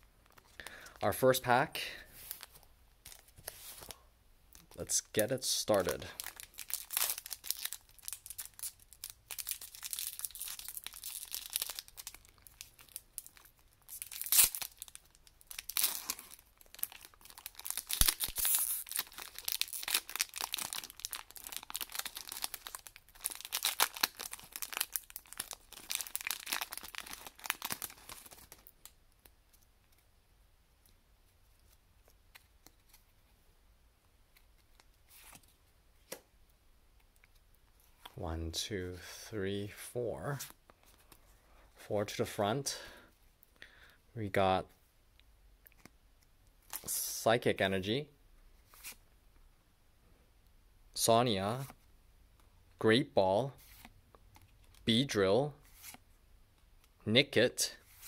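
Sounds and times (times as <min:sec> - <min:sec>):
foil wrapper tearing and crinkling: 0:06.2 - 0:28.7.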